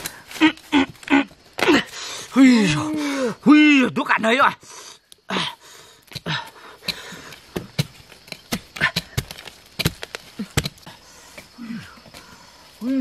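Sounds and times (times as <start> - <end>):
digging tool thudding into earth: 6.9 - 10.8.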